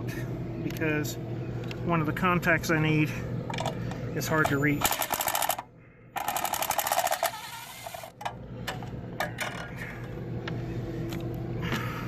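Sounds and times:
cordless driver rattling: 4.8s - 5.6s, 6.2s - 8.3s.

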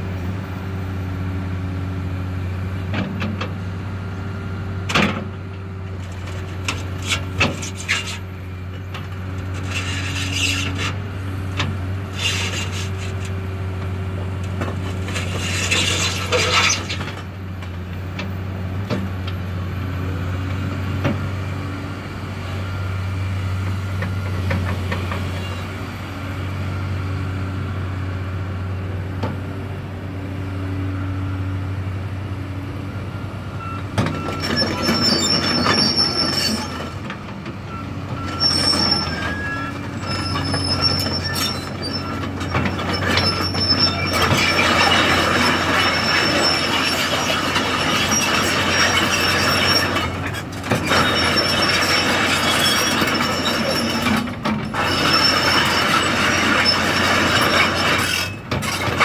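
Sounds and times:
diesel engine running: 0.0s - 59.0s
metal tracks squealing and clanking: 6.0s - 13.5s, 14.2s - 20.9s, 23.8s - 26.0s, 33.6s - 59.0s.

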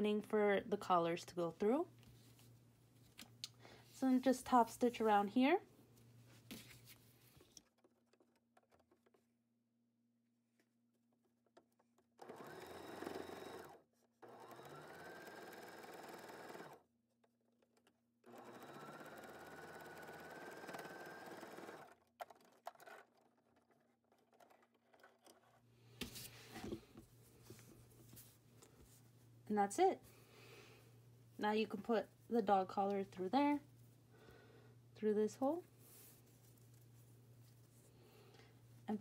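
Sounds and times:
sewing machine running: 12.2s - 16.8s, 18.2s - 23.7s.

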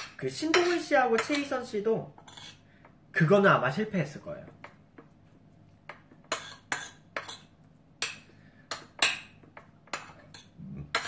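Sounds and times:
metal spoon scraping ceramic bowl: 2.2s - 2.7s.

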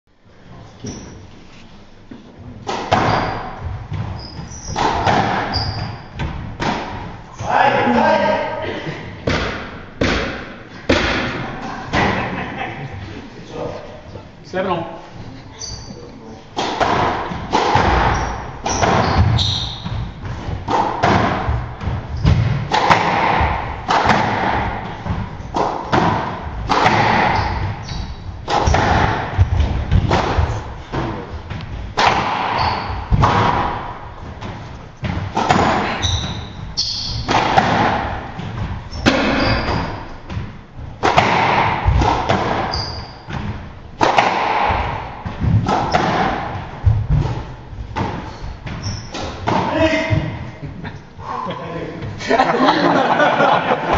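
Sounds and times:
sneakers squeaking on hardwood: 0.8s - 1.3s, 2.7s - 7.5s, 15.5s - 44.0s, 44.6s - 50.6s
squash ball struck by rackets: 2.6s - 7.2s, 9.2s - 12.2s, 16.6s - 50.5s
ball smacking off walls: 16.6s - 27.8s, 32.0s - 36.4s, 37.2s - 42.7s, 43.3s - 50.4s.

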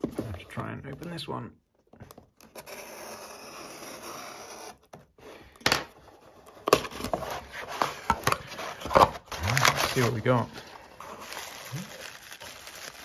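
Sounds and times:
cardboard box cracking open: 11.2s - 13.0s.

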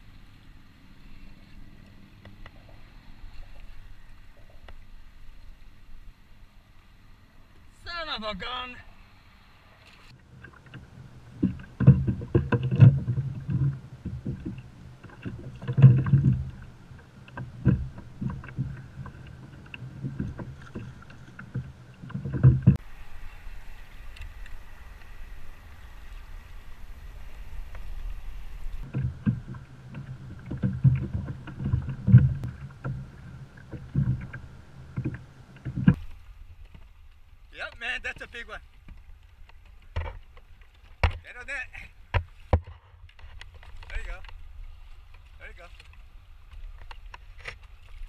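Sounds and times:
water sloshing at hull: 0.0s - 48.0s
knocks and thumps on plastic kayak: 11.4s - 16.7s, 17.3s - 18.9s, 19.5s - 22.8s, 28.8s - 36.9s, 38.8s - 41.4s, 42.1s - 44.4s.

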